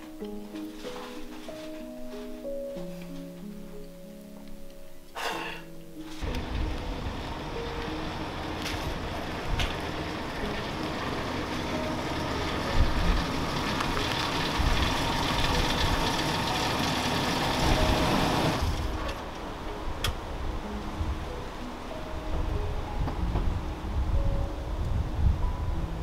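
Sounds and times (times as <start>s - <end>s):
car driving on wet pavement: 6.2s - 19.0s.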